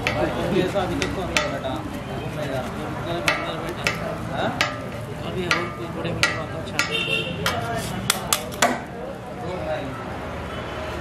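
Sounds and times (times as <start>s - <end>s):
metal spatula striking griddle: 0.0s - 1.8s, 3.0s - 8.9s.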